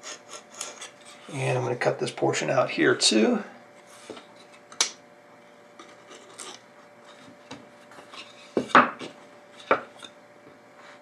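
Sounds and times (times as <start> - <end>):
wooden pieces knocking on bench: 8.6 - 9.9.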